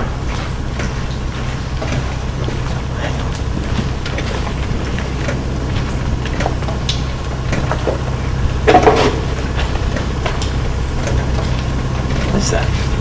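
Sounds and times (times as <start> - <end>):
clatter: 0.0 - 13.0
footsteps on gritty floor: 0.0 - 13.0
machinery humming: 0.0 - 13.0.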